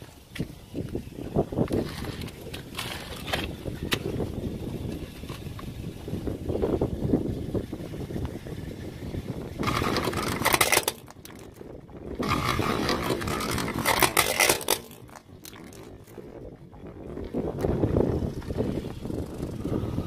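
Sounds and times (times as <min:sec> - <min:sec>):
plastic cracking and crunching: 0:09.6 - 0:11.5, 0:12.2 - 0:15.9.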